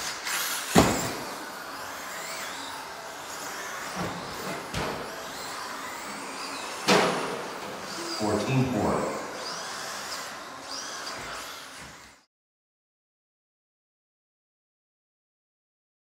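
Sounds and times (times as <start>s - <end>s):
rc car motors whining: 0.0s - 12.3s.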